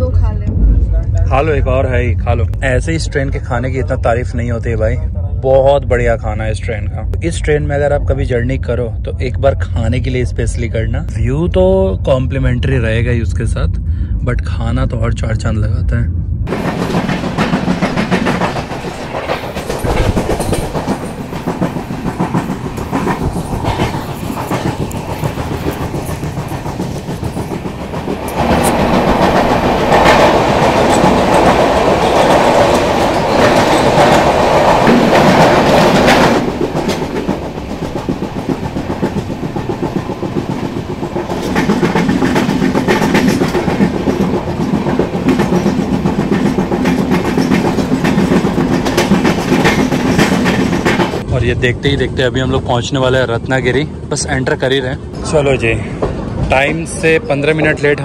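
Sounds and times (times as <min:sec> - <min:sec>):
train wheels clattering on rails: 0:16.5 - 0:51.3.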